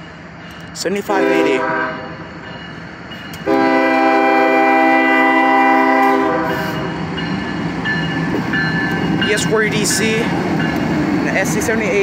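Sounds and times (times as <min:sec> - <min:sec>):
train rumbling past: 0:00.0 - 0:12.0
locomotive air horn blast: 0:01.1 - 0:02.2, 0:03.4 - 0:06.8.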